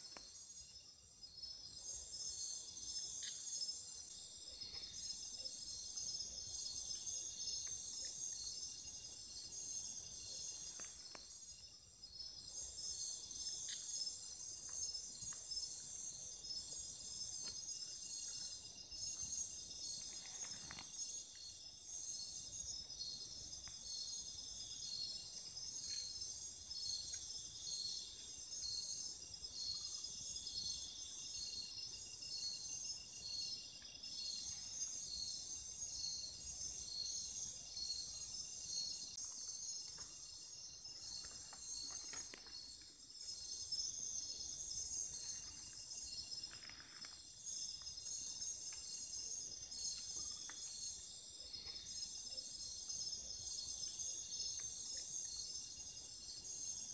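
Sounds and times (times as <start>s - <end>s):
crickets and insects trilling: 0.0s - 56.9s.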